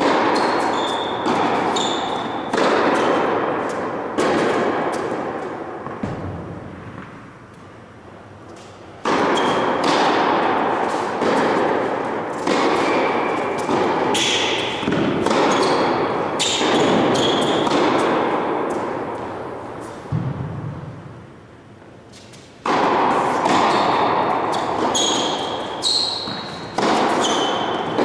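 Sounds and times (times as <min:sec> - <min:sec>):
tennis balls hit and bouncing: 0:00.0 - 0:28.0
thud: 0:05.8 - 0:07.1, 0:20.1 - 0:21.0.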